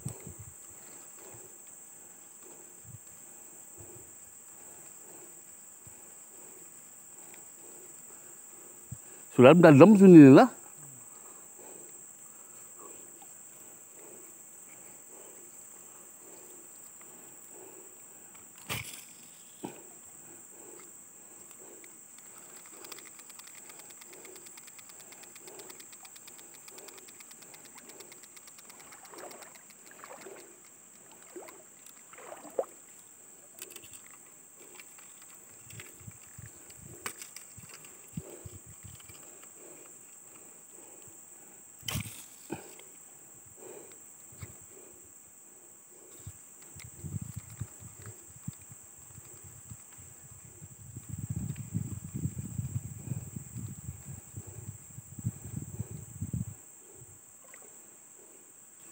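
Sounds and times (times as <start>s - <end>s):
insects shrilling: 3.8s - 45.1s.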